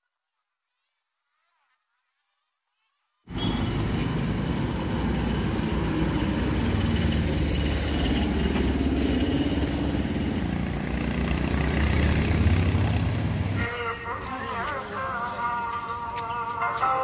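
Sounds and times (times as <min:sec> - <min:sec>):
vehicle engine running: 0:03.3 - 0:13.7.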